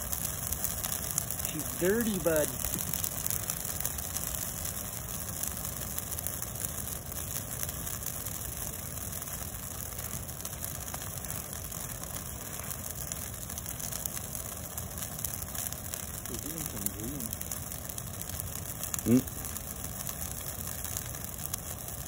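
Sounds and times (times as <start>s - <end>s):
bonfire burning: 0.0s - 22.0s.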